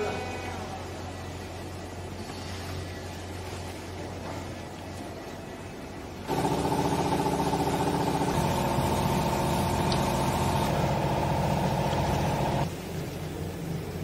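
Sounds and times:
machine motor humming: 6.3s - 12.7s.

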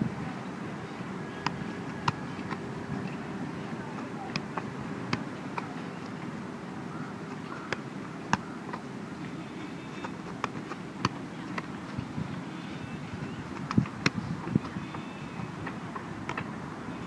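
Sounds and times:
outdoor background noise: 0.0s - 17.0s
football kick thuds: 7.7s - 8.8s, 9.8s - 12.2s, 13.5s - 15.3s.

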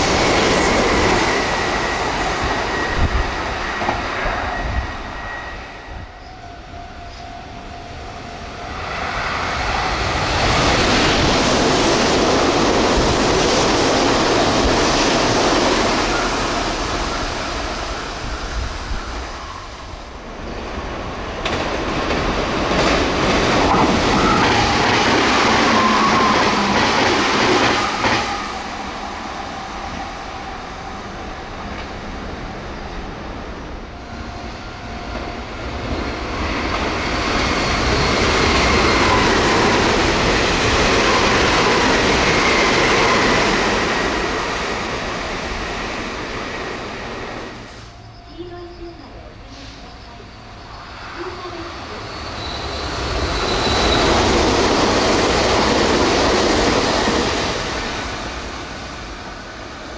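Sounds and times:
trains passing at high speed: 0.0s - 59.9s.

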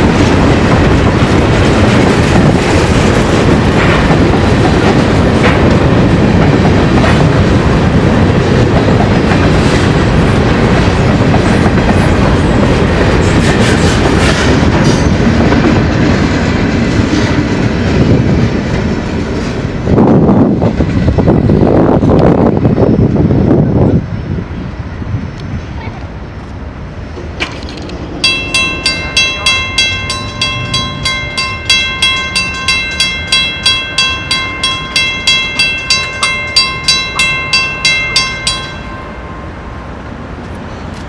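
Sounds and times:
train wheels clacking on rail joints: 0.0s - 19.8s, 27.1s - 39.2s
freight train rumble: 0.0s - 41.0s.

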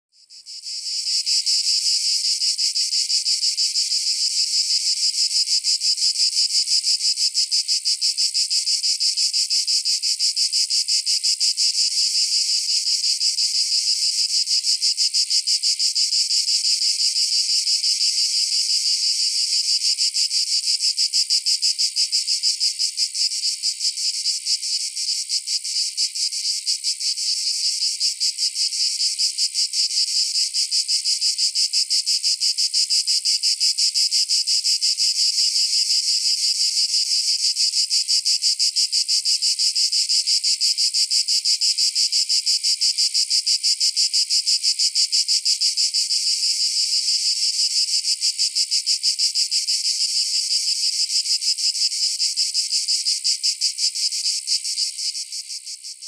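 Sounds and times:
cicadas buzzing: 0.3s - 7.6s, 16.6s - 31.2s, 47.9s - 56.0s.

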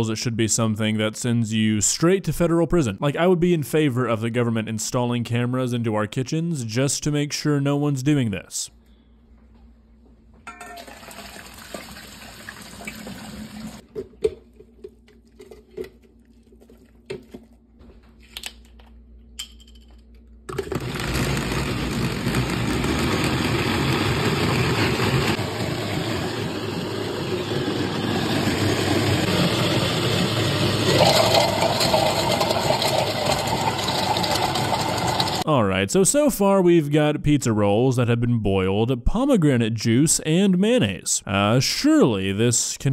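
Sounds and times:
kitchenware clinking: 10.5s - 11.4s
water poured into sink: 10.8s - 13.8s, 30.8s - 35.4s
loud steady rushing noise: 22.2s - 31.0s.

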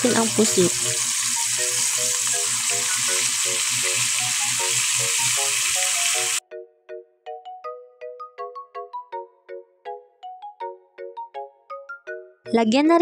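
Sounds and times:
squid sizzling in hot oil: 0.0s - 6.4s
background music: 0.0s - 13.0s.

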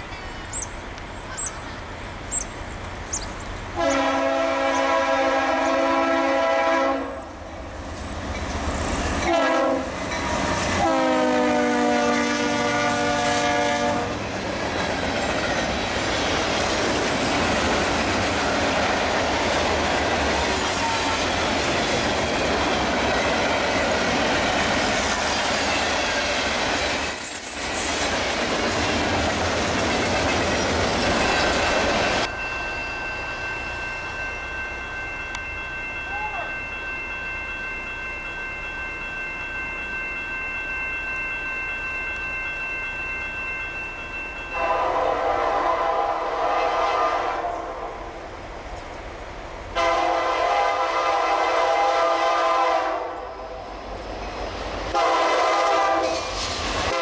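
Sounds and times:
freight train rumbling by: 0.0s - 57.0s
locomotive air horn blasts: 3.8s - 7.3s, 9.2s - 10.0s, 10.7s - 14.2s, 20.7s - 21.3s, 44.6s - 48.0s, 49.8s - 53.4s, 54.9s - 57.0s
wheels clacking over rail joints: 14.2s - 32.3s.

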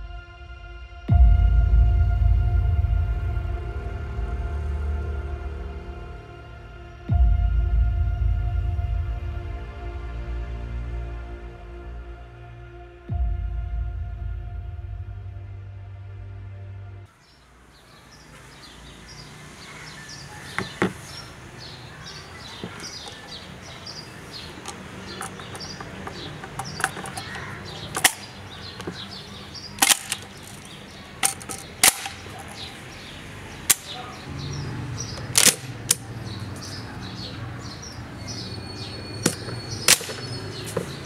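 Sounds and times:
birds chirping: 17.1s - 41.0s
shotgun metallic clicks: 24.5s - 32.8s, 33.6s - 34.0s, 35.1s - 36.1s, 39.2s - 40.8s.

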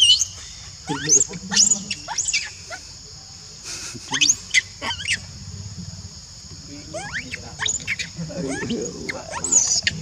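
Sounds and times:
young monkey squealing: 0.0s - 2.8s, 4.1s - 5.3s, 6.9s - 10.0s.

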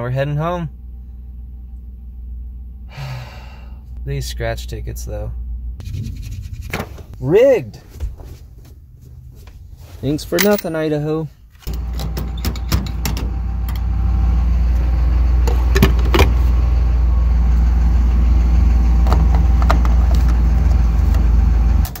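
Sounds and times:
low rumble: 0.7s - 10.3s.

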